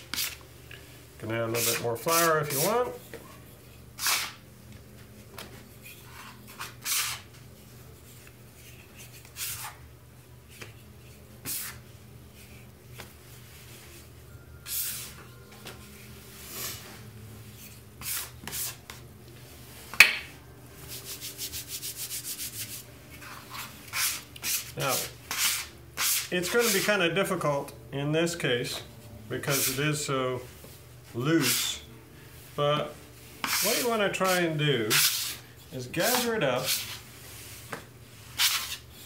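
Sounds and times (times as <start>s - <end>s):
scraper scraping dough on counter: 3.6s - 4.4s, 5.9s - 7.3s, 21.0s - 26.9s, 33.4s - 35.4s, 36.0s - 37.0s, 38.3s - 39.0s.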